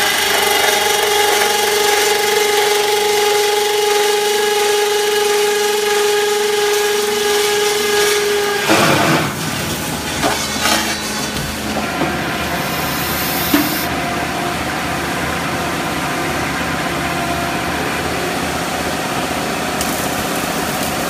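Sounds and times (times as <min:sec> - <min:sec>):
loud burst of noise: 0:00.0 - 0:16.4
roll forming machine whine: 0:00.0 - 0:21.0.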